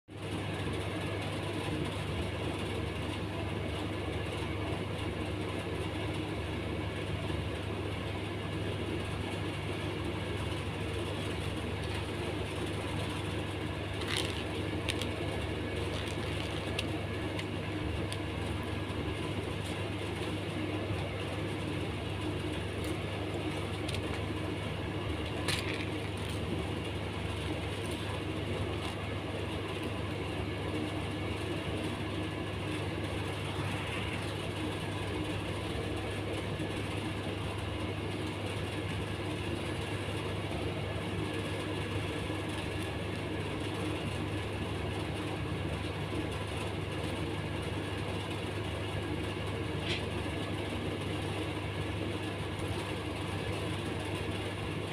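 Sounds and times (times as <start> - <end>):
low background hum and rumble: 0.1 - 54.9.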